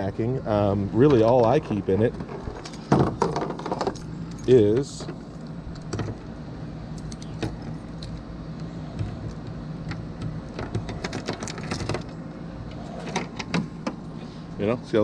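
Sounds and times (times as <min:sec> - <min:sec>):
steady low hum: 0:00.0 - 0:15.0
keys jangling: 0:03.6 - 0:05.1, 0:07.0 - 0:08.2.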